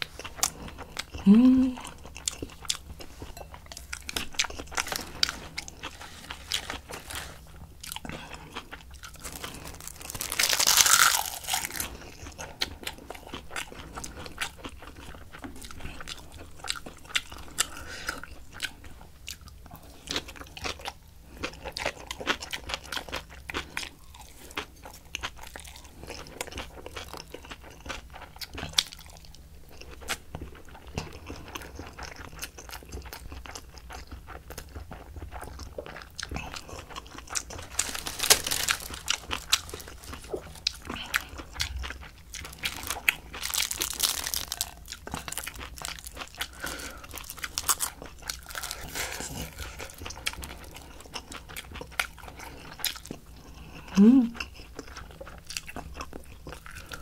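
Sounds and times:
close chewing with wet crunches: 1.8s - 57.0s
crisp crackle of seaweed sheets: 9.2s - 11.9s, 37.6s - 40.5s, 42.4s - 50.0s.

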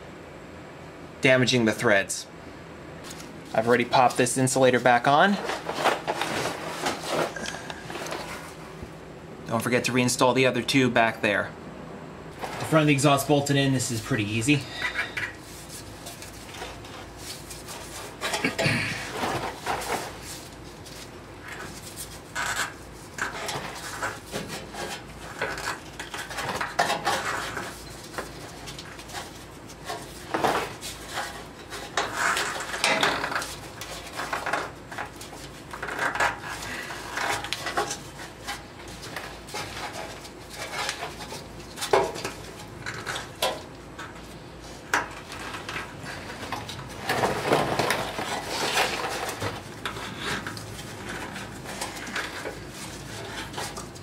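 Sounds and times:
metal and rubber clinking and rubbing: 14.6s - 54.0s.

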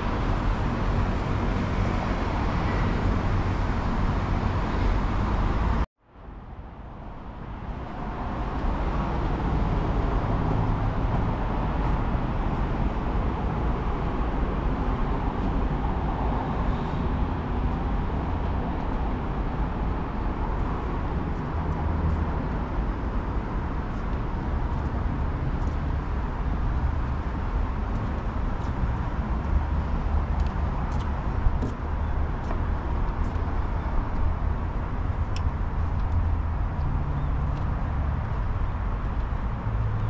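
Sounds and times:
low outdoor rumble: 0.0s - 40.0s.

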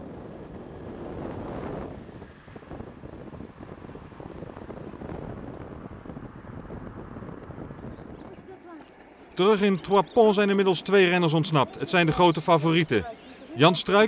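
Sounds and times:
wind buffeting a microphone: 0.0s - 10.6s.

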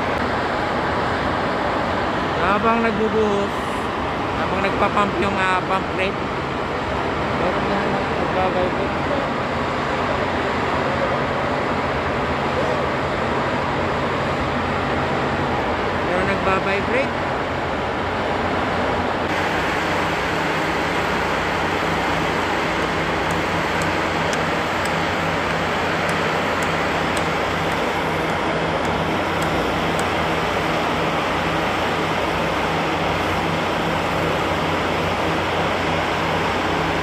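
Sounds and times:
concrete pump running: 19.3s - 37.0s
concrete vibrators humming: 19.3s - 37.0s.

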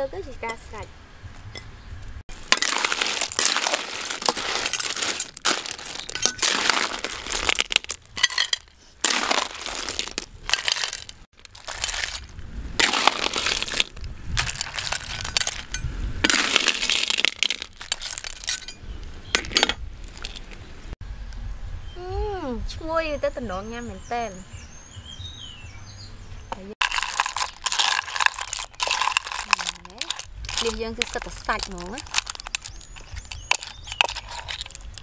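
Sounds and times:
clams clinking against metal ladle: 2.4s - 18.8s, 26.8s - 35.0s.

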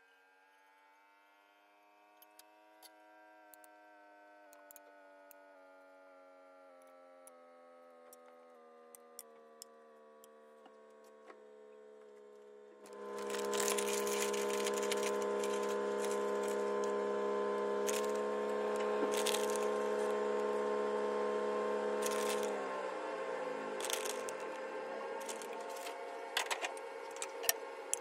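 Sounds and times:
soft held chords: 9.9s - 28.0s.

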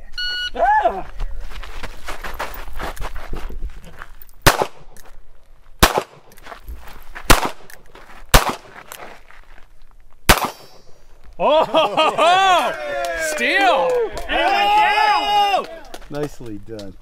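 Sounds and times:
pistol shots: 4.4s - 4.9s, 5.8s - 6.3s, 7.3s - 7.7s, 8.3s - 8.7s, 10.3s - 10.8s.

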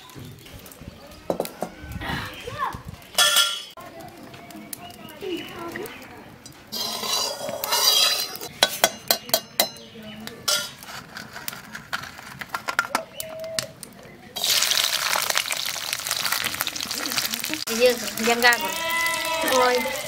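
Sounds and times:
frying sizzle in hot oil: 0.0s - 9.8s, 14.4s - 20.0s
crabs clinking on steel plate: 6.7s - 11.1s.

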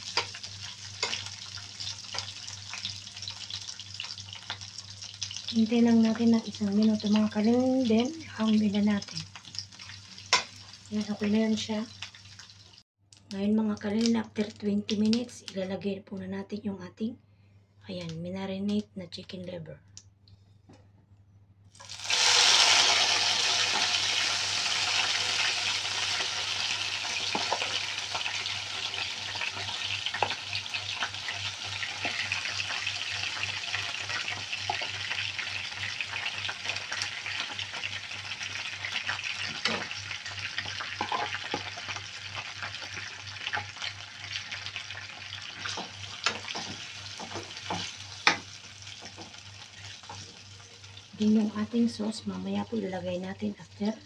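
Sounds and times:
spoon stirring in a pan: 0.0s - 2.9s, 38.7s - 50.5s
chicken livers sizzling in oil: 0.0s - 12.8s, 21.8s - 51.6s.

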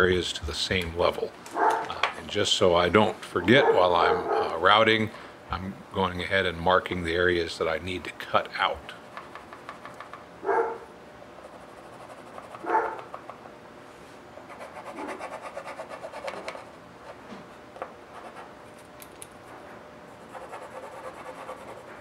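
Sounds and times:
pencil scratching on wood: 11.4s - 13.2s, 14.5s - 17.2s, 18.1s - 18.5s, 20.2s - 22.0s.

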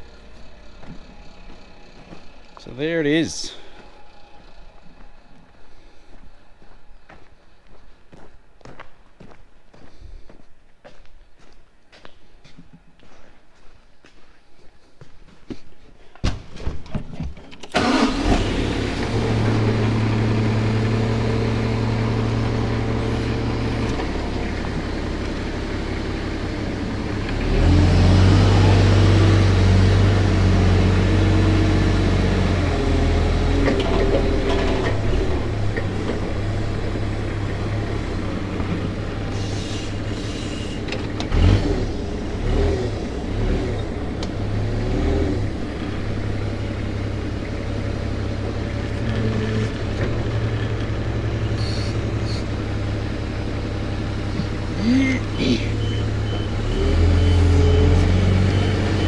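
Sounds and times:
engine starting and running: 16.2s - 59.0s.

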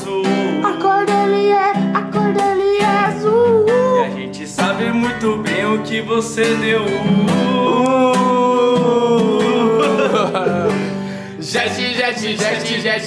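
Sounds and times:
man singing: 0.0s - 1.6s, 2.2s - 13.0s
strummed classical guitar: 0.0s - 13.0s
man laughing: 8.8s - 11.1s.

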